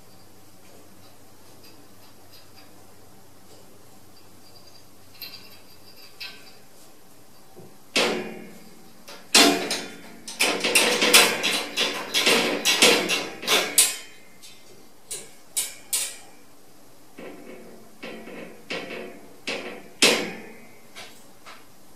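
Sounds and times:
metal cage latch clanking: 8.0s - 14.2s.

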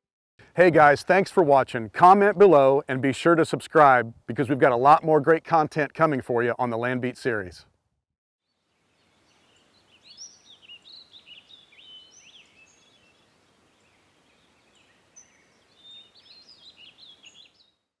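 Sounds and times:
soft outdoor hiss: 0.4s - 7.3s, 8.4s - 17.7s
songbirds chirping: 8.4s - 17.9s.

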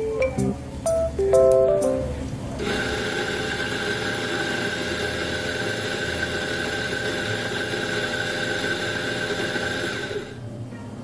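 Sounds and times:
coffee grinder running: 2.6s - 10.4s.

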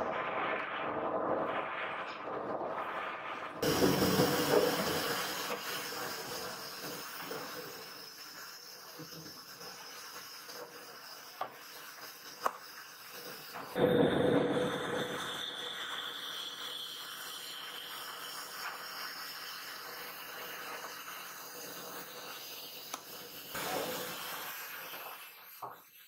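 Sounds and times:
steady hissing: 0.0s - 26.0s.

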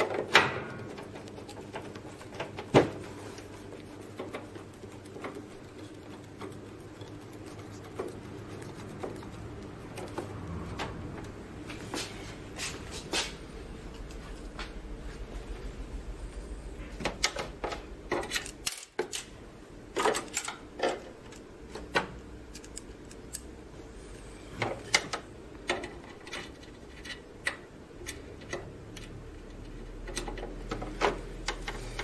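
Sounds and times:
screwdriver clicking and scraping: 22.5s - 23.5s.

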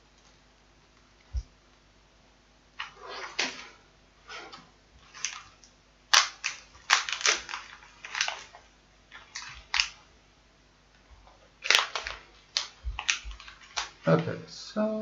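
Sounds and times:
plastic packaging crinkling: 5.0s - 10.1s, 11.3s - 14.2s
sharp snaps: 5.2s - 8.6s.

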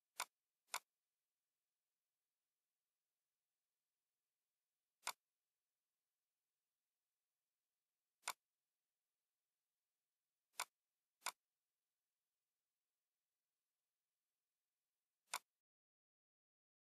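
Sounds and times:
computer mouse clicks: 0.1s - 0.9s, 5.0s - 5.3s, 8.2s - 8.5s, 10.5s - 11.4s, 15.2s - 15.6s.

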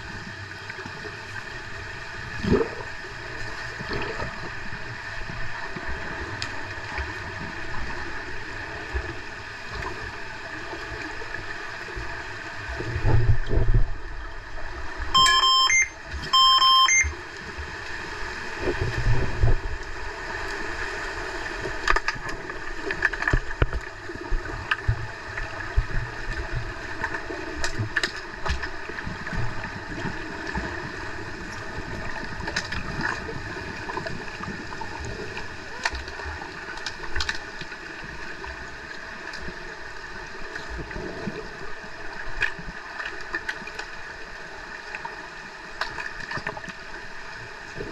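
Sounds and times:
electronic beeps: 15.2s - 17.2s.

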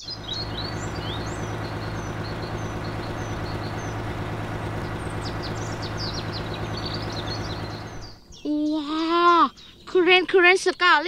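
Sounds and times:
truck diesel engine droning: 0.0s - 8.2s
faint bird chirps: 0.0s - 11.0s.

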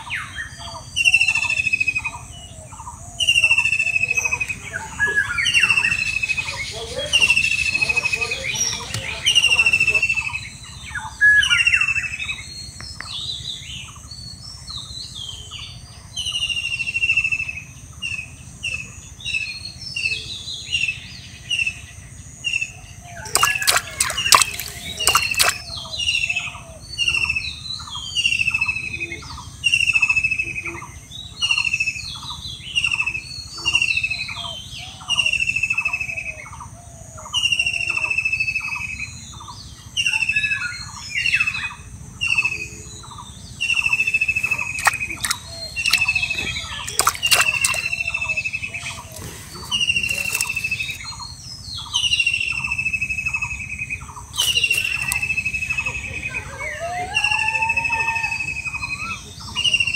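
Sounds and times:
birds chirping: 0.0s - 15.2s, 22.7s - 28.0s, 39.3s - 59.9s.

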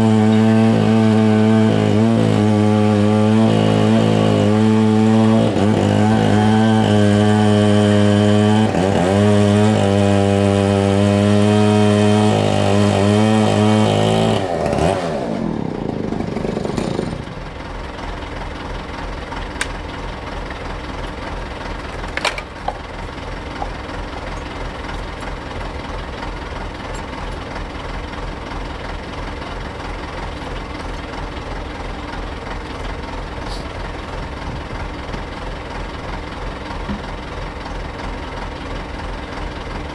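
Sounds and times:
engine running fast: 0.0s - 39.9s
tractor diesel engine idling: 14.6s - 39.9s.

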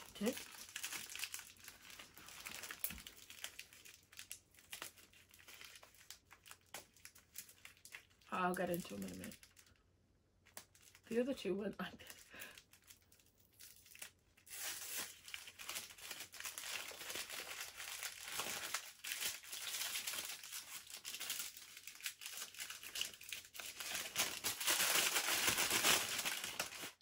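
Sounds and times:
wrapping tearing: 0.0s - 9.8s, 10.4s - 11.1s, 12.0s - 27.0s
wrapping crumpling and rustling: 0.0s - 27.0s.

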